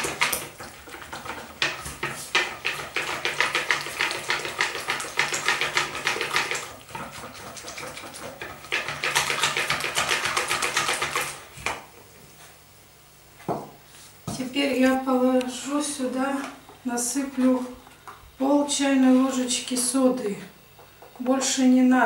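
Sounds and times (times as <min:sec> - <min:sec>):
whisk beating in plastic bowl: 0:00.0 - 0:11.9.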